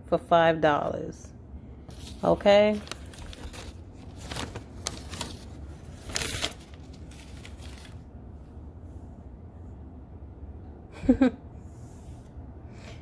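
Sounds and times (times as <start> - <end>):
low room hum: 0.0 - 13.0
paper receipt rustling: 1.9 - 8.1.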